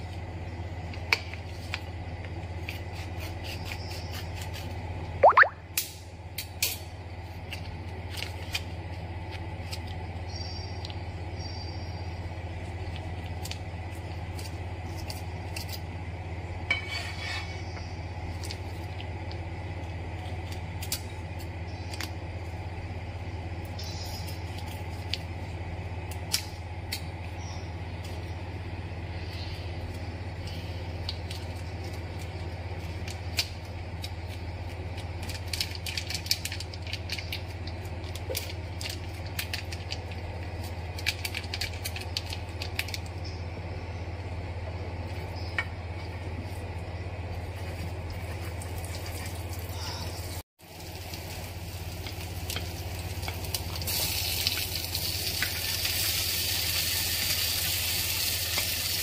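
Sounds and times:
gas stove hum: 0.0s - 59.0s
oil ticking and crackling: 12.3s - 15.8s, 29.3s - 43.3s, 47.5s - 59.0s.

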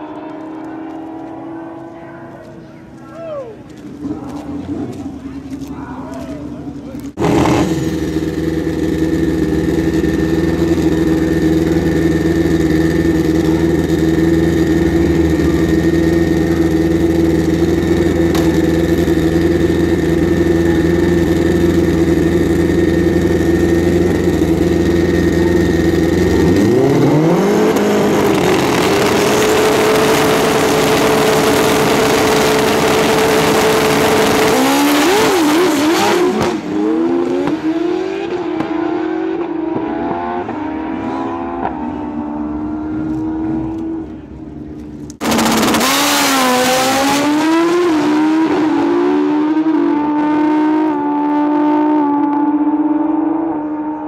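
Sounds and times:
motorcycles revving and accelerating: 0.0s - 2.7s, 6.3s - 54.0s.

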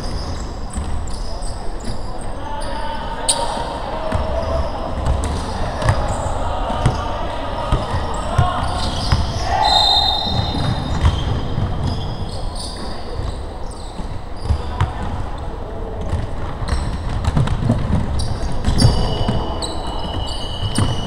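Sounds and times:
players calling out: 0.0s - 15.7s
sneakers squeaking: 0.0s - 21.0s
basketball bouncing: 16.0s - 19.4s.

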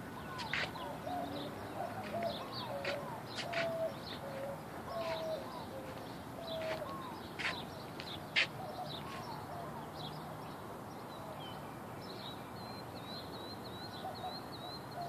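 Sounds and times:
birds short repeated calls: 0.0s - 9.9s.

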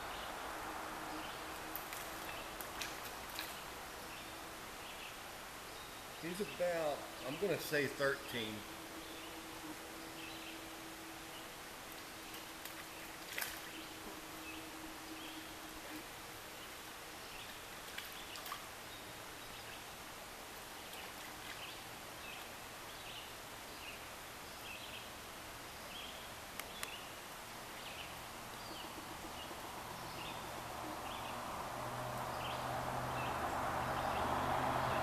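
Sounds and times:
flowing water rushing: 0.0s - 22.8s.

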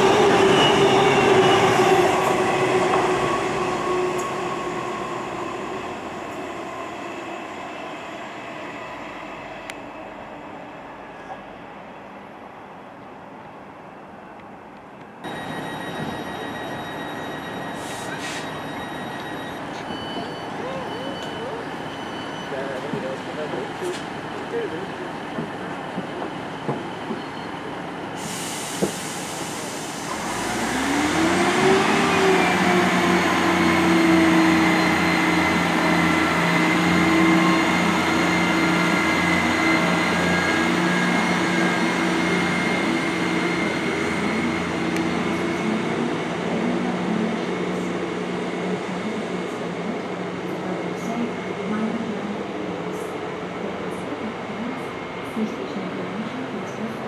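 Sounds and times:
diesel train engine revving: 28.3s - 48.4s.

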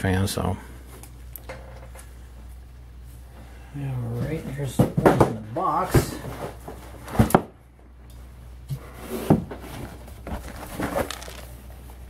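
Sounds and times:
cardboard box knocks and scrapes: 9.0s - 11.4s.

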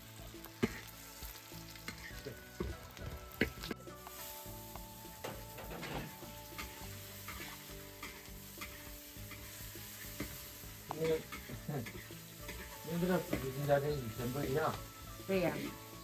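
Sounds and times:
peppers sizzling in hot oil: 0.0s - 16.0s
metal spatula scraping wok: 0.4s - 16.0s.

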